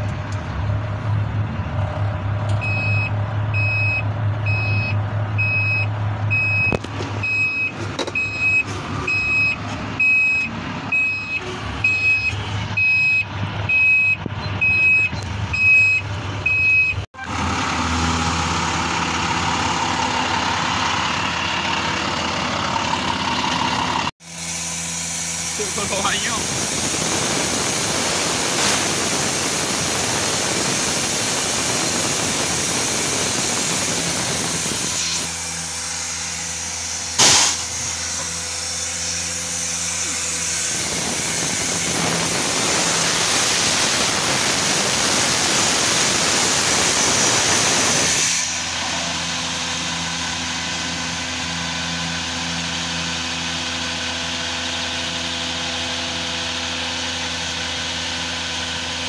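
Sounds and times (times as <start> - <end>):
truck engine and pump running: 0.0 - 59.0
loud air hiss: 24.2 - 36.2, 36.9 - 48.7
sharp bang: 37.2 - 37.8.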